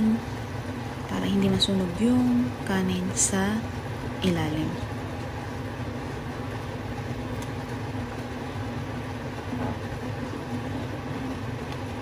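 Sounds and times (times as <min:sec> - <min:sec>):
pot of porridge boiling: 0:00.0 - 0:12.0
steady low hum: 0:00.0 - 0:12.0.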